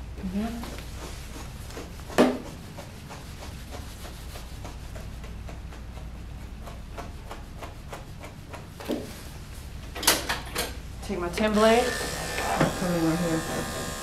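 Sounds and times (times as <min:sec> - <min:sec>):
brush scratching through dog fur: 0:00.5 - 0:09.7.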